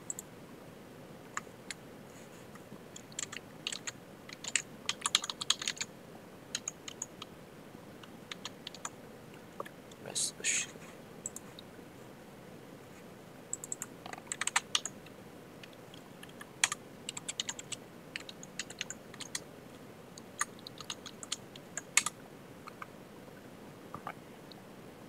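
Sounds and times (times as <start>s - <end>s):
computer keyboard typing: 0.0s - 0.3s, 3.0s - 5.9s, 6.5s - 7.3s, 8.3s - 8.9s, 11.2s - 11.5s, 13.5s - 15.0s, 15.6s - 19.4s, 20.2s - 22.9s.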